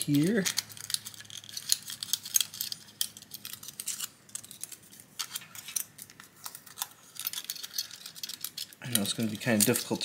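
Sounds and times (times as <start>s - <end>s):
aluminium foil crinkling: 0.0s - 10.0s.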